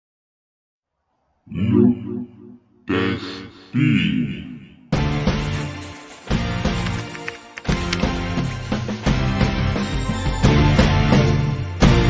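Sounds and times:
deep voice vocal sounds: 1.5 - 5.0
music: 4.9 - 12.0.

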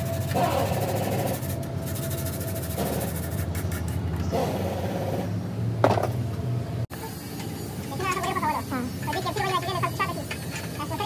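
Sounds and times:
scratchy scraping bursts: 0.0 - 5.1
low engine-like hum: 0.0 - 11.0.

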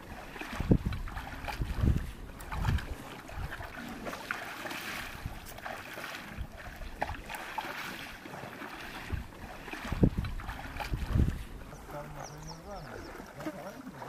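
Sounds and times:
wind on the microphone: 0.0 - 3.8, 5.0 - 5.7, 9.0 - 13.2
water sloshing and splashing: 0.0 - 14.0.

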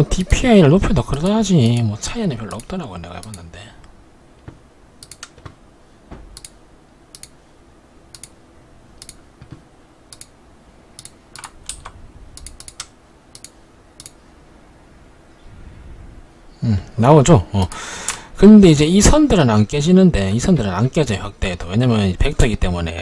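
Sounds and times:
keyboard and mouse clicks: 4.4 - 5.6, 6.3 - 7.4, 8.1 - 8.4, 9.0 - 10.4, 11.0 - 14.2.

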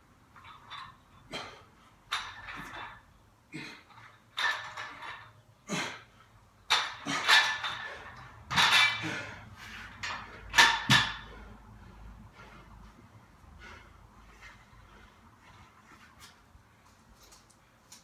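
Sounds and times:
barbell plates clanking: 2.1 - 3.0, 4.0 - 5.4, 6.7 - 11.4.

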